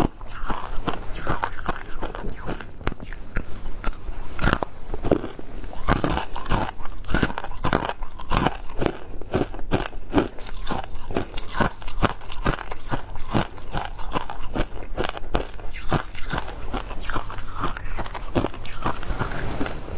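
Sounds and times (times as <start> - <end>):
shaved ice being chewed: 0.0 - 19.9.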